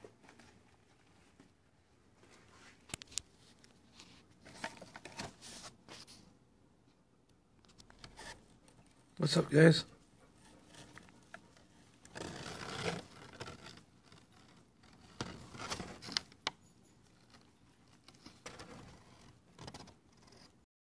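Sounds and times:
squirrels rustling and scratching fabric: 0.0s - 6.2s.

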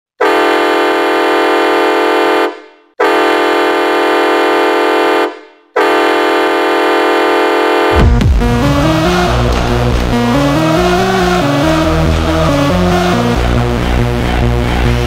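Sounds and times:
ice hockey goal horn blasts: 0.2s - 10.2s.

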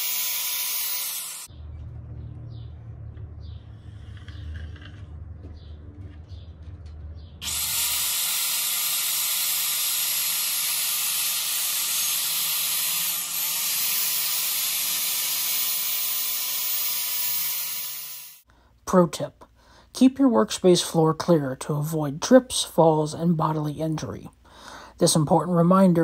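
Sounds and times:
circular saw cutting board: 0.0s - 1.5s, 7.4s - 18.4s
low rumble: 1.5s - 7.4s.

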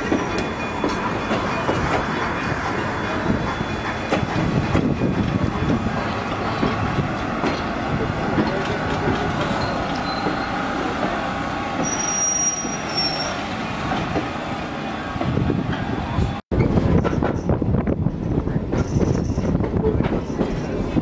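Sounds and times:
train coaches rumbling and clattering: 0.0s - 21.0s
high-pitched wheel squeal: 9.5s - 10.6s, 11.8s - 13.4s.

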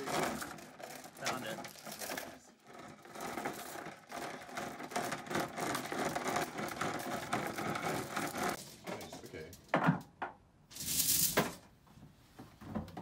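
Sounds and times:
anchor chain clattering: 0.0s - 8.8s.

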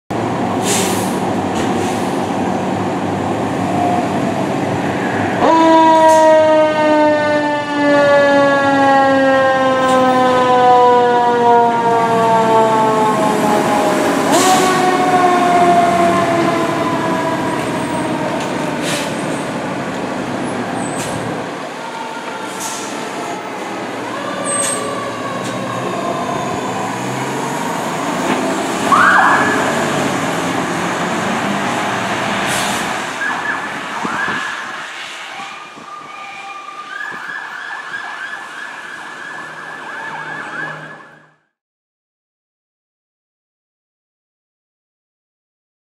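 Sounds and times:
truck engines running: 0.1s - 8.3s, 9.1s - 36.1s
fire truck siren: 0.6s - 41.6s.

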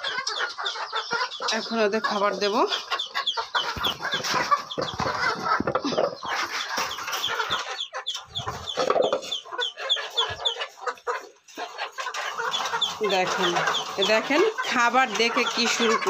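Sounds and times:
chickens clucking and squawking: 0.0s - 16.0s
handling knocks and scrapes: 3.7s - 7.0s.

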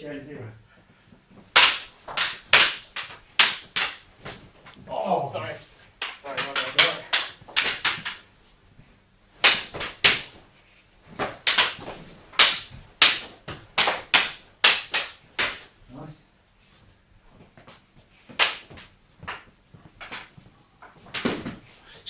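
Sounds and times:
sticks clacking together: 1.6s - 4.0s, 6.0s - 8.2s, 11.2s - 15.6s.

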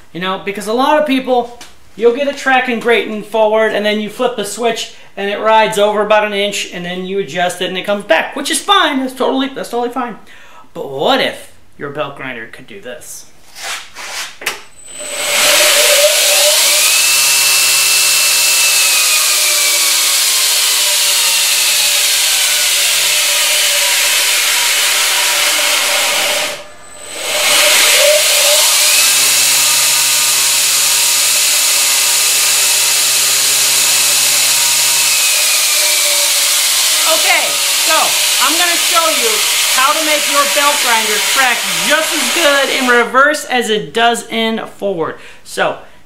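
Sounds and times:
belt grinder motor whine: 14.8s - 43.0s.

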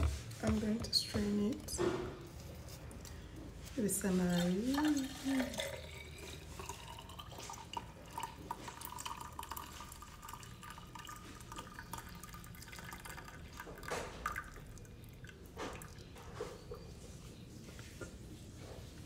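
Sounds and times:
liquid pouring and dripping into cup: 4.4s - 16.9s.

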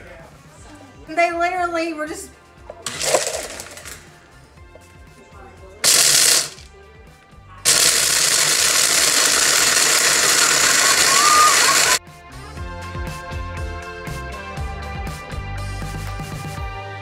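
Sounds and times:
blender chopping: 2.9s - 4.0s, 5.8s - 6.7s, 7.7s - 12.0s.

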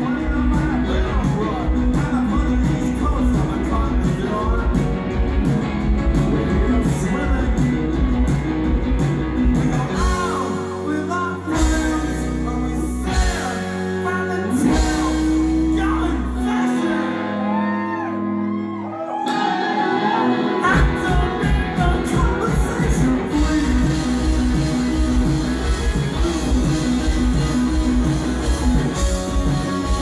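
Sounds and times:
man singing and shouting: 0.0s - 5.0s, 6.2s - 7.8s, 9.4s - 18.2s, 20.0s - 25.6s
bass guitar: 0.0s - 30.0s
electric guitar: 0.0s - 30.0s.

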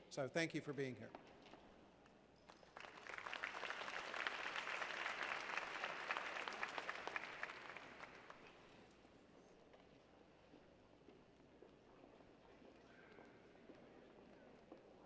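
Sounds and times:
audience applauding: 2.5s - 8.7s.

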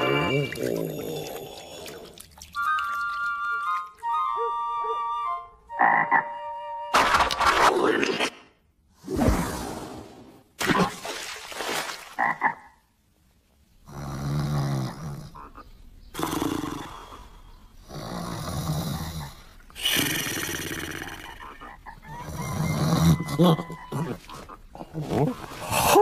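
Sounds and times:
cartoon snoring: 13.8s - 15.5s, 16.1s - 21.6s, 22.2s - 24.2s.

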